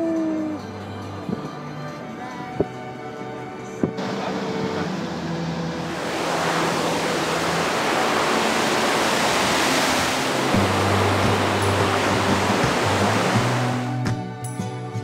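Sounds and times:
faint music: 0:00.0 - 0:06.4
river water rushing over stones: 0:05.8 - 0:14.0.

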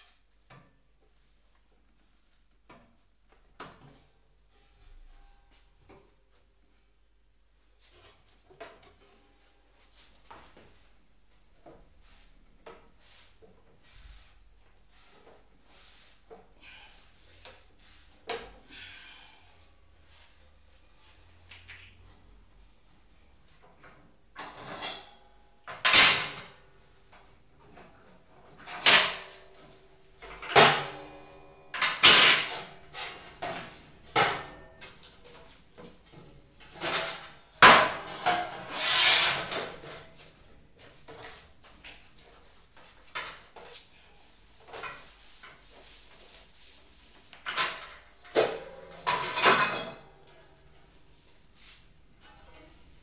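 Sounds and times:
sheet metal clanking on table: 0:30.3 - 0:34.8, 0:47.5 - 0:50.1.

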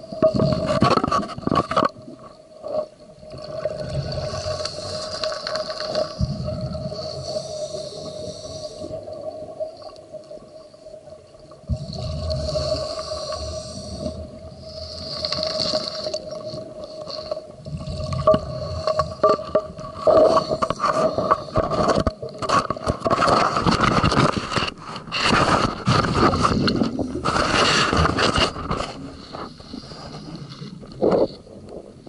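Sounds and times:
water gurgling: 0:00.0 - 0:32.0
scraping on camera housing: 0:19.0 - 0:31.4.

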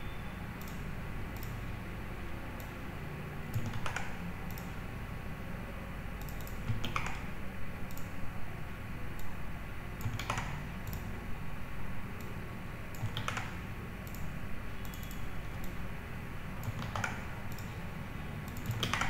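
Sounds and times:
steady low hum: 0:00.0 - 0:19.0
keyboard and mouse clicks: 0:00.6 - 0:01.6, 0:03.5 - 0:04.8, 0:06.2 - 0:08.2, 0:10.0 - 0:11.1, 0:12.2 - 0:15.8, 0:16.6 - 0:17.8, 0:18.5 - 0:19.0.

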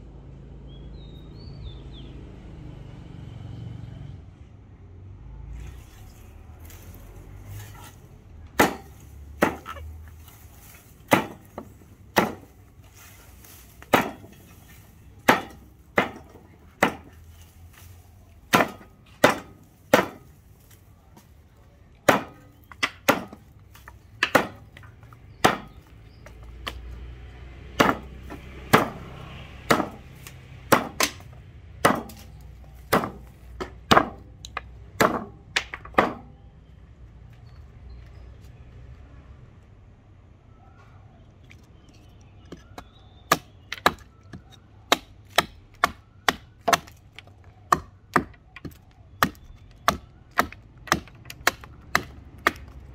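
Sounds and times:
hatchet chopping branches on wood: 0:05.6 - 0:36.4, 0:42.4 - 0:52.9.

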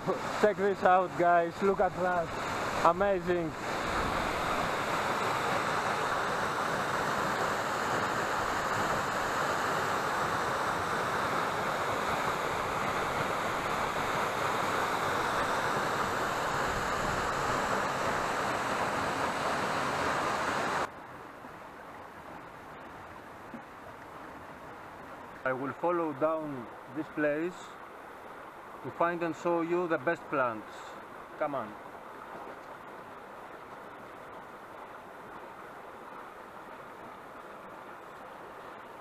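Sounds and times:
waterfall rushing: 0:00.0 - 0:20.9
rocky stream flowing: 0:00.0 - 0:39.0.

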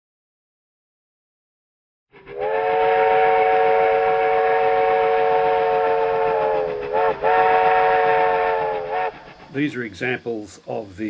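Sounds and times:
steam locomotive whistle: 0:02.2 - 0:09.8.

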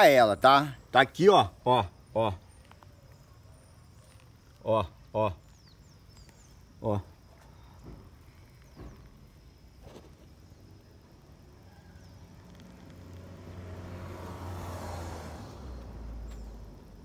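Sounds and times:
faint knocks: 0:07.7 - 0:09.3
vehicle passing: 0:12.2 - 0:17.0.

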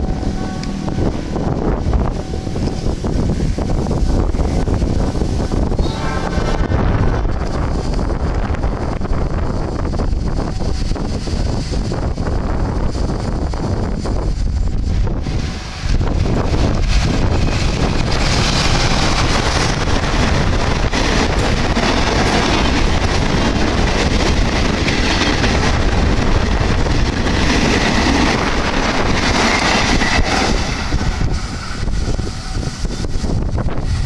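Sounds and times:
train wheels rumbling on rails: 0:00.0 - 0:34.0
wind buffeting microphone: 0:00.0 - 0:34.0.

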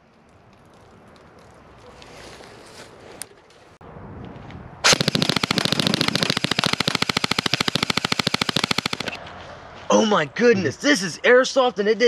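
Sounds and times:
airsoft rifle full-auto burst: 0:04.8 - 0:09.2.

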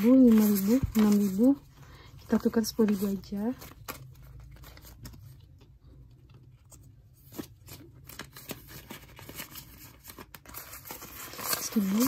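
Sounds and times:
banknotes rustling: 0:00.0 - 0:12.0.

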